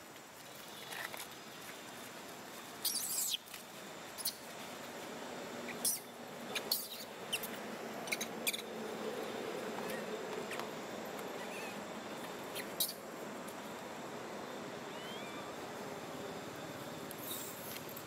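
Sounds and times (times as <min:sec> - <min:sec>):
baby monkey squeaking: 0:02.8 - 0:03.4, 0:05.7 - 0:08.6.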